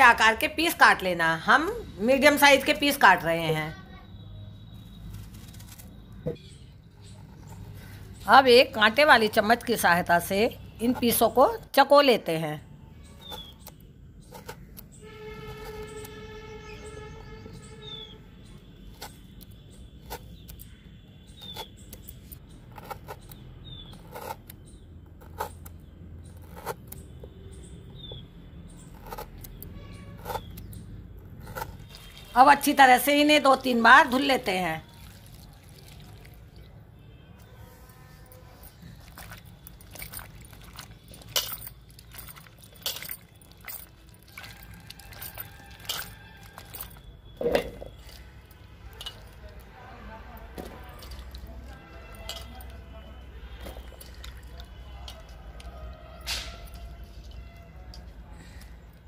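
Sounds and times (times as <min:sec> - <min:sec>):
water splashing in steel bowl: 0:31.8 - 0:32.6, 0:34.8 - 0:36.7, 0:39.0 - 0:47.0, 0:50.8 - 0:51.5.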